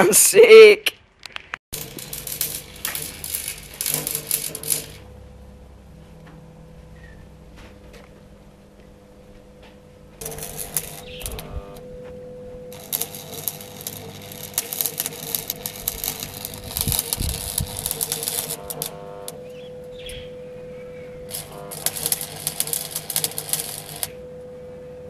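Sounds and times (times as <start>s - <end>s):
arc welder crackling: 1.2s - 6.9s, 10.1s - 20.2s, 21.1s - 24.3s
steady hum: 1.8s - 25.0s.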